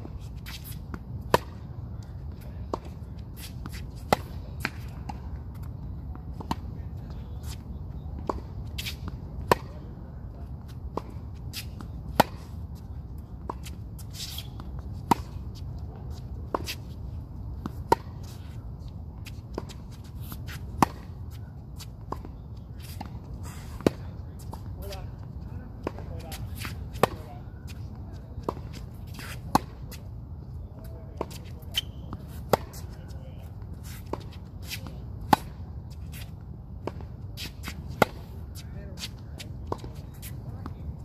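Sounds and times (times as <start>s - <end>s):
racket striking tennis ball: 8.2s - 9.8s, 10.9s - 12.6s, 13.4s - 15.6s, 19.2s - 21.2s, 25.8s - 27.3s, 33.8s - 38.4s.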